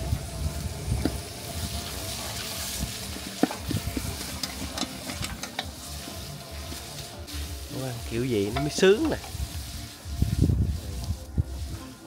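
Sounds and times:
food sizzling in pot: 0.0 - 12.0
stirring clicks and scrapes: 1.8 - 12.0.

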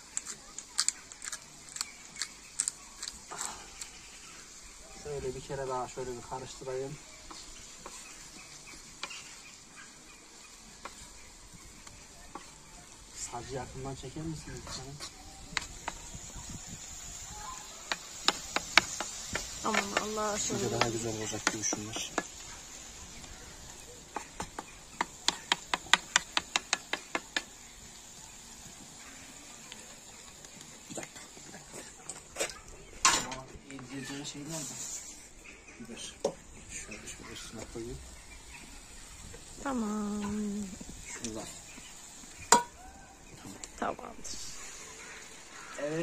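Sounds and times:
faint steady hiss: 0.0 - 46.0
wooden spatula knocking on pan: 17.9 - 20.2, 20.8 - 22.3, 24.1 - 27.5.

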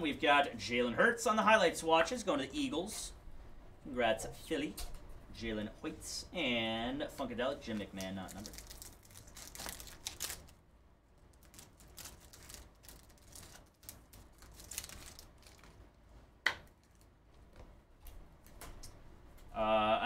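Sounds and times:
foil wrapper crinkling and tearing: 7.8 - 10.6, 11.3 - 15.8.

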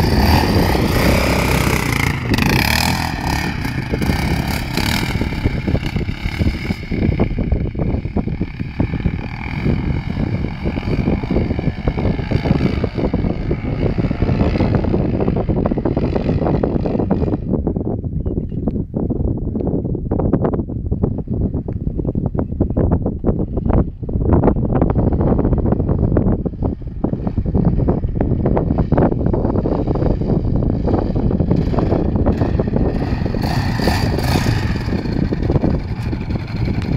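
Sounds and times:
quad engine revving: 0.0 - 17.5, 26.5 - 36.9
wind buffeting microphone: 0.0 - 36.9.

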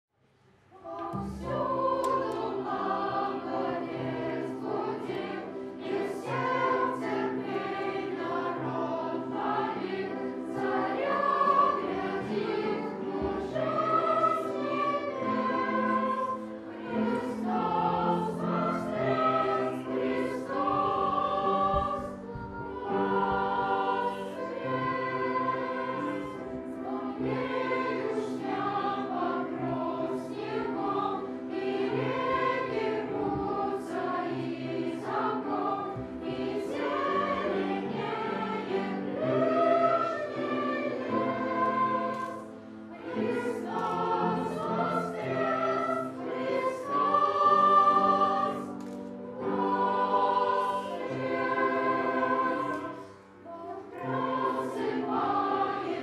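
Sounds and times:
children's choir singing: 0.7 - 56.0.

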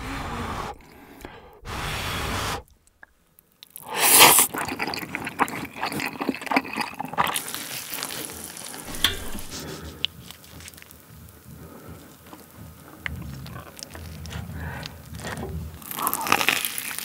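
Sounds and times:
slurping noodles: 0.0 - 2.7, 3.8 - 10.2
wet chewing and smacking: 2.8 - 17.0.

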